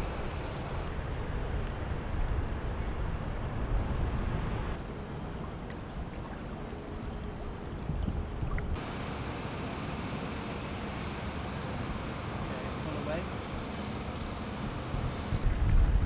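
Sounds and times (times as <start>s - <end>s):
water lapping and churning: 0.0s - 8.9s
low steady rumble: 0.0s - 16.0s.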